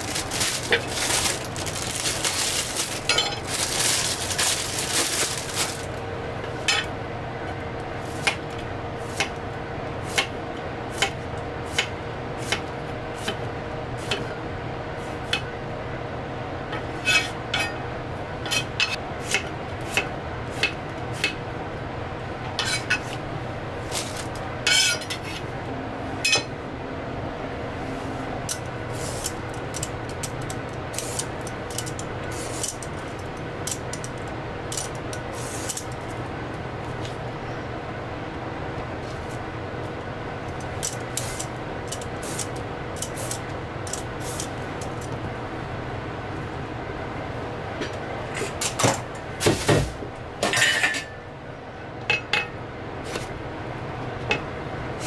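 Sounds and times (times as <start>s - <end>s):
rustling clatter: 0.0s - 6.0s
steady hum: 0.0s - 55.0s.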